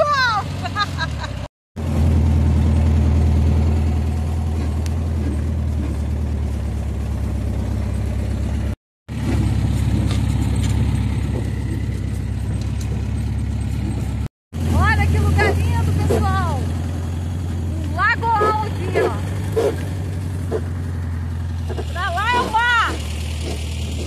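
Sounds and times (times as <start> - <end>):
dune buggy engine running: 0.0 - 24.0
wind: 0.0 - 24.0
rattle: 4.1 - 14.3.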